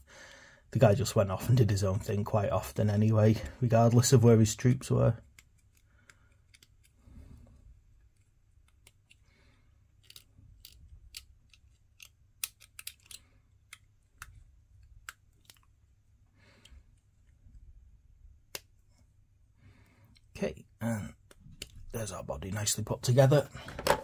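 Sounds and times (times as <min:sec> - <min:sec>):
plastic parts clicking: 0:05.2 - 0:07.0, 0:08.0 - 0:15.8, 0:21.2 - 0:21.9, 0:23.6 - 0:24.0.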